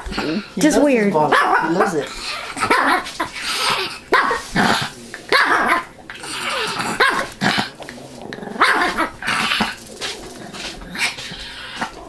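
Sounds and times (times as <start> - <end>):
dog growling playfully: 0.0 - 12.0
dog barking: 1.3 - 3.1, 4.1 - 4.5, 5.3 - 5.9, 6.9 - 7.4, 8.6 - 9.1.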